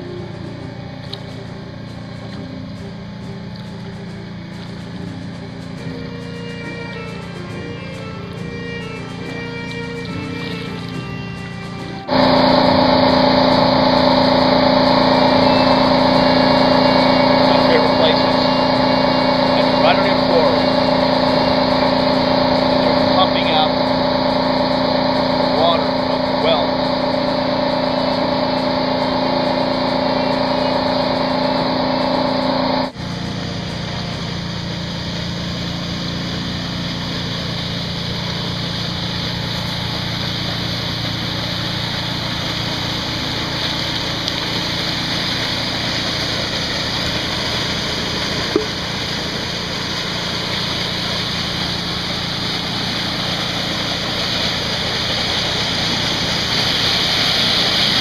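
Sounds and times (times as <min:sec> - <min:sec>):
low steady hum: 0:00.0 - 0:58.0
steady humming tones: 0:00.0 - 0:58.0
water gushing over pebbles: 0:35.5 - 0:58.0.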